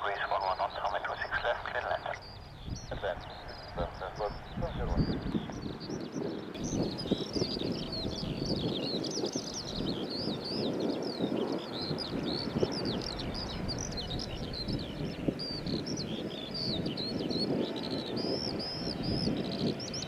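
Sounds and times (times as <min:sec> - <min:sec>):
low rumbling noise: 0:00.0 - 0:10.6
songbirds chirping: 0:00.0 - 0:20.0.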